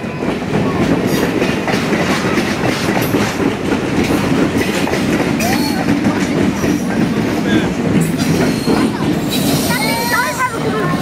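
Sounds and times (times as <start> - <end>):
train cars rumbling past: 0.0 - 11.0
wheels clacking over rail joints: 0.0 - 11.0
wheel squeal: 8.2 - 10.5.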